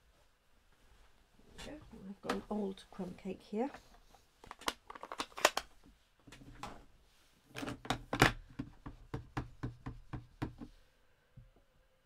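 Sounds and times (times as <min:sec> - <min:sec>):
plastic cases clacking together: 0:04.4 - 0:05.7, 0:07.5 - 0:08.7.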